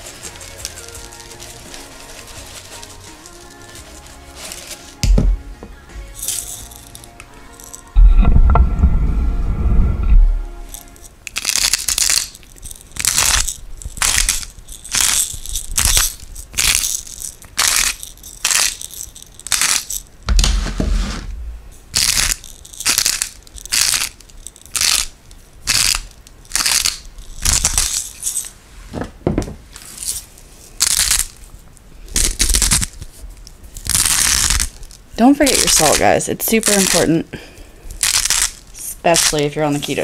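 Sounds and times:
spice grinder grinding: 0.0 - 5.0, 6.1 - 8.0, 10.7 - 21.2, 21.9 - 28.5, 32.1 - 37.2, 37.9 - 40.0
low thump: 5.0 - 5.7, 8.0 - 10.4, 20.3 - 21.8.

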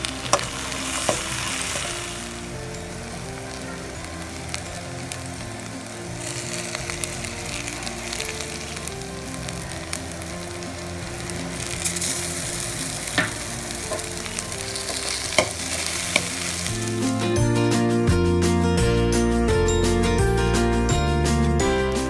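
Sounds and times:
food sizzling in a hot pan: 0.0 - 17.6.

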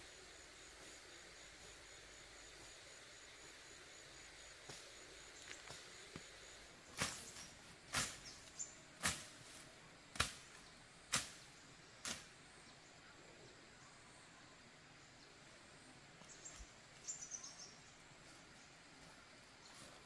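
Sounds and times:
machete slashing through grass: 6.9 - 8.3, 9.0 - 10.5.

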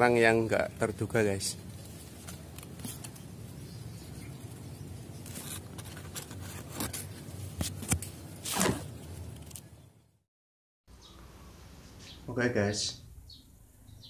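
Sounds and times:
leaves and branches rustling: 0.0 - 9.7.

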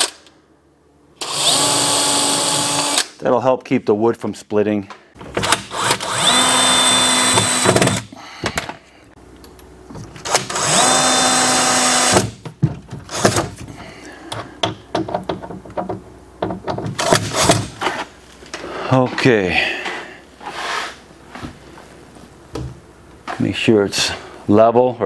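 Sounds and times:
cordless drill whining: 1.2 - 3.0, 5.4 - 8.0, 10.3 - 12.2.

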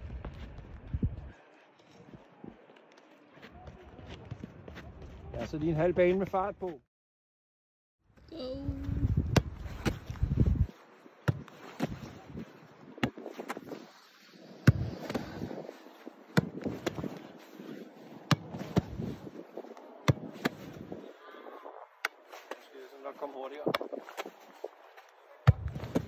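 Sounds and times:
wind buffeting microphone: 0.0 - 1.4, 8.4 - 11.0, 14.5 - 22.0
football being kicked: 11.3 - 12.0, 14.6 - 15.2, 16.3 - 17.1, 18.3 - 19.0, 20.0 - 20.8, 25.4 - 26.0.

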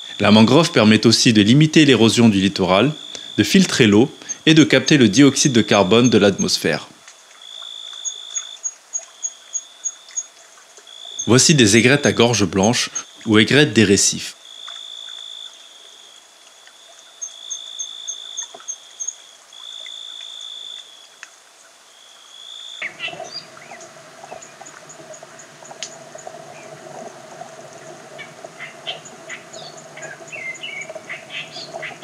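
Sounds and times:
insect buzzing: 0.0 - 13.4, 14.3 - 32.0
bird chirps and calls: 22.8 - 24.8, 28.2 - 32.0
low steady hum: 22.8 - 32.0.

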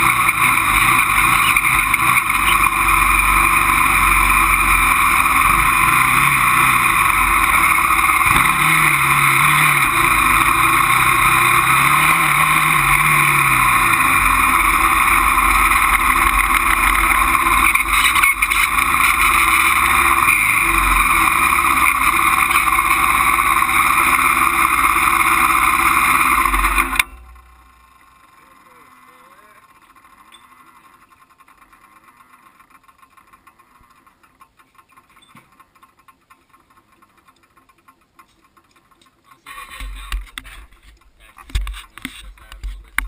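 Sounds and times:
quad engine revving: 0.0 - 31.0.

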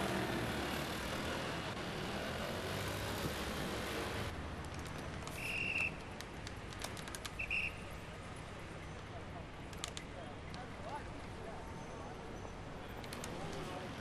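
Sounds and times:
scooter engine and road noise: 0.0 - 5.4
street sound: 0.0 - 14.0.

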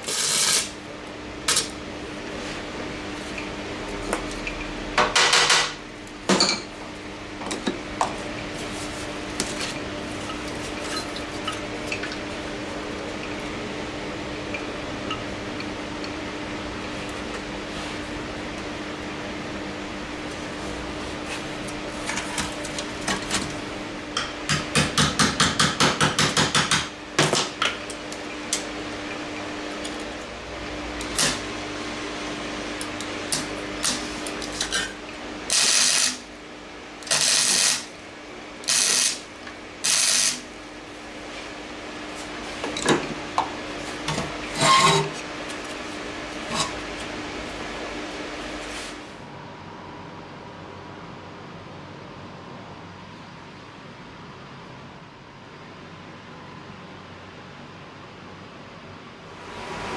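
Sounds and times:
welding crackle: 0.0 - 0.8, 31.0 - 31.4, 35.5 - 36.2, 37.0 - 37.9, 38.7 - 40.5
steady hum: 0.0 - 59.9.

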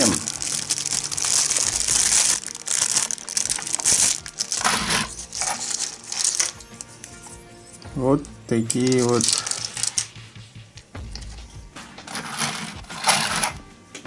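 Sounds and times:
plastic bag crinkling: 0.0 - 6.9, 8.7 - 10.2.

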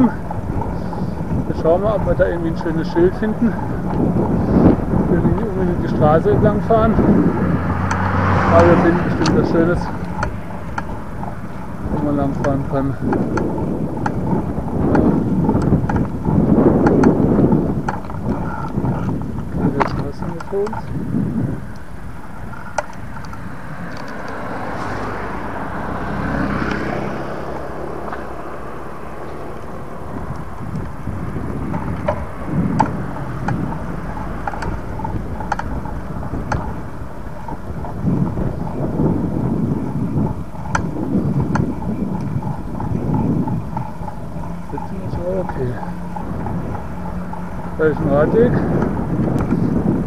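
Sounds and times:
wind buffeting microphone: 0.0 - 50.0
sharp clicks: 31.7 - 36.9.

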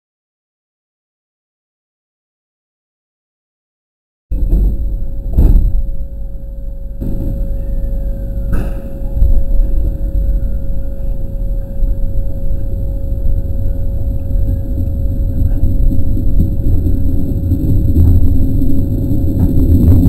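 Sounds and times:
constant electric hum: 4.3 - 20.0
train low rumble: 4.3 - 20.0.

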